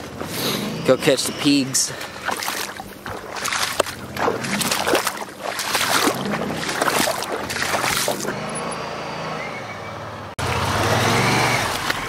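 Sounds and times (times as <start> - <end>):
footsteps splashing through muddy water: 0.0 - 8.6.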